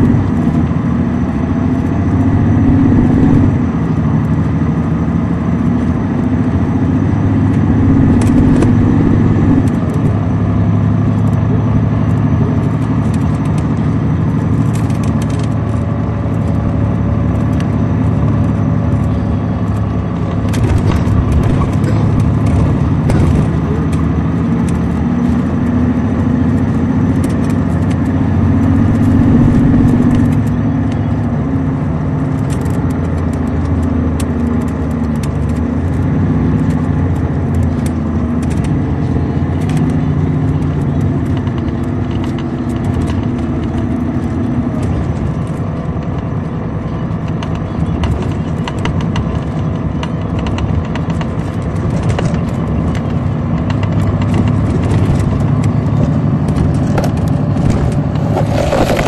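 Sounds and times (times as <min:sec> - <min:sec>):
diesel coach engine drone: 0:00.0 - 0:59.0
short rattles and clicks: 0:07.4 - 0:31.1.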